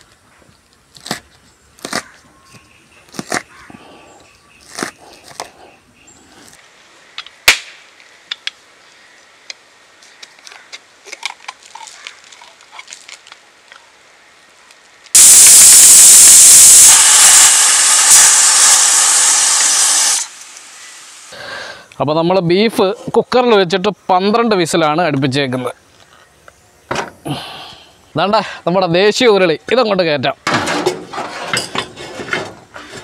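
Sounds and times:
pressure cooker steam hissing: 15.2 - 21.4.

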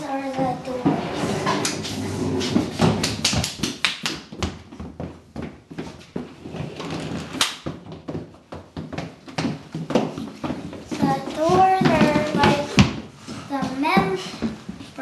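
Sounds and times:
sliding doors knocking: 0.6 - 3.6.

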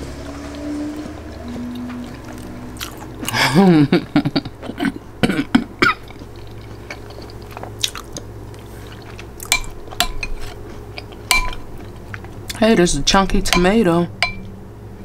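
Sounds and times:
spoon clinking and scraping in bowl: 9.5 - 11.7, 13.5 - 14.5.

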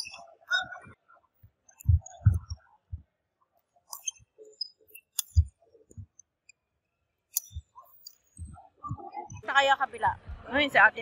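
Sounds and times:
shoe squeaks: 3.9 - 5.6.

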